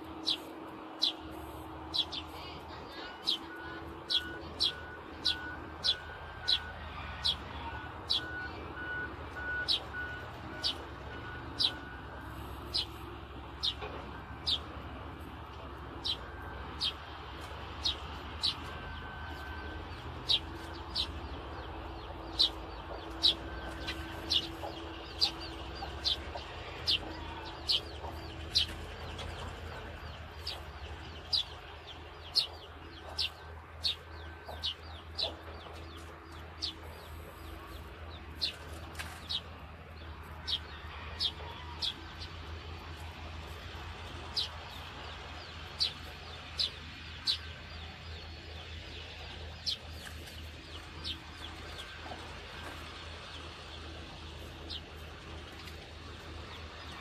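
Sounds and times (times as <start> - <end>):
distant heavy machinery drone: 0.0 - 57.0.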